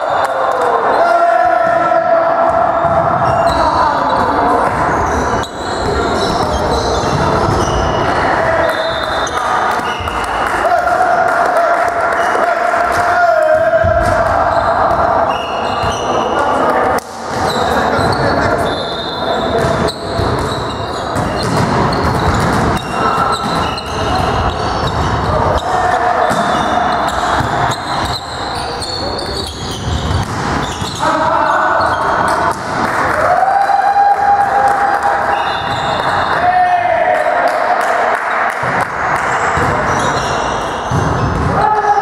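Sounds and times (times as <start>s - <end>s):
players' voices: 0.0s - 42.0s
shoes squeaking on gym floor: 4.9s - 8.1s, 14.5s - 16.3s, 17.4s - 25.1s, 26.4s - 32.6s, 39.9s - 41.1s
ball bouncing: 19.6s - 28.4s, 29.2s - 31.0s, 31.8s - 33.0s, 39.5s - 41.6s.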